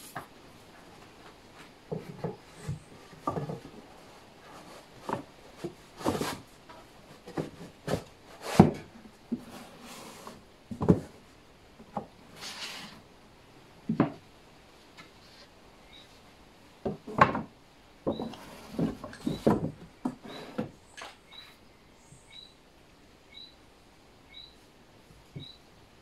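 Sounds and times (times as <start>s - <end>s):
wood knocking and scraping on wood: 0.0s - 13.0s, 13.8s - 14.3s, 16.8s - 21.5s.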